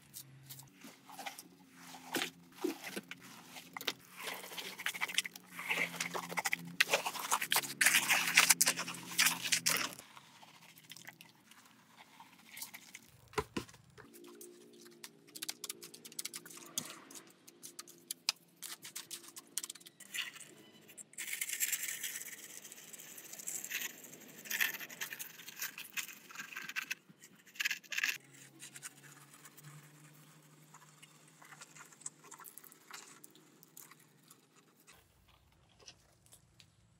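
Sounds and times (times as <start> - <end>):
trowel scraping wet concrete: 0.2 - 13.1.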